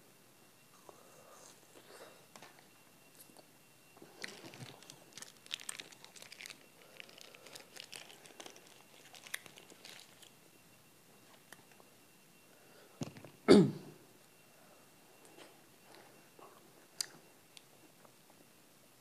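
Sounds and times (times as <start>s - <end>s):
plastic wrapper crinkling and tearing: 4.1s - 10.4s.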